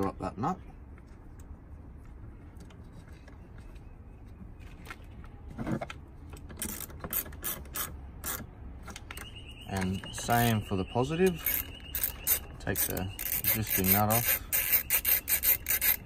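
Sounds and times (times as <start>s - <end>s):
ratchet wrench clicking: 11.3s - 16.0s.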